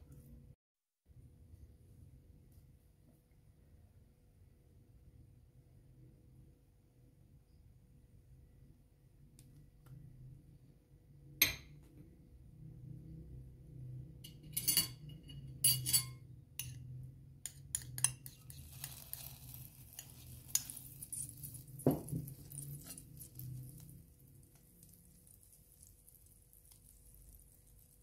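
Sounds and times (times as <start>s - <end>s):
metal spoon clinking on bowl and pan: 14.2s - 23.9s
butter hissing in hot pan: 18.5s - 21.3s.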